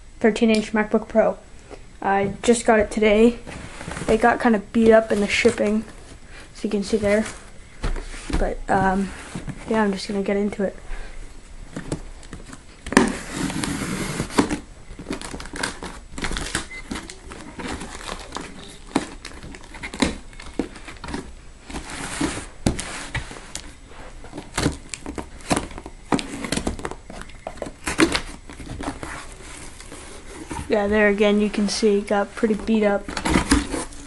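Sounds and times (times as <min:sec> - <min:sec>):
tape and cardboard tearing: 0:12.8 - 0:23.7, 0:24.3 - 0:30.8, 0:32.8 - 0:34.0
knife cutting packing tape: 0:12.9 - 0:14.6, 0:33.1 - 0:34.0.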